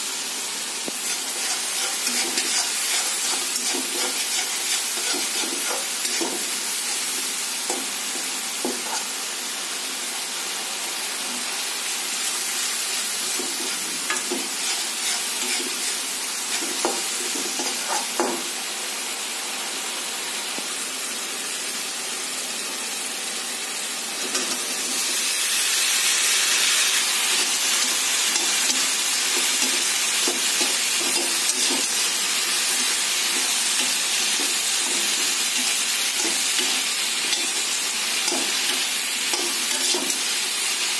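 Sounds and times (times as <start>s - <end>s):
food sizzling in oil: 0.0s - 40.9s
metal spoon scraping pan: 1.0s - 6.5s, 13.4s - 18.2s, 38.2s - 40.2s.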